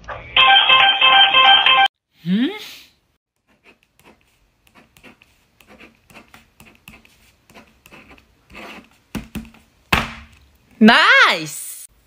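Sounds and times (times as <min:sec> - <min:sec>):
pen scratching on paper: 0:03.4 - 0:09.0.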